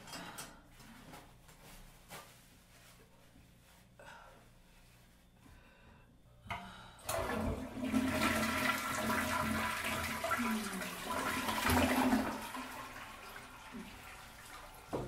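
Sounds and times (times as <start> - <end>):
toilet flushing: 7.0 - 15.0.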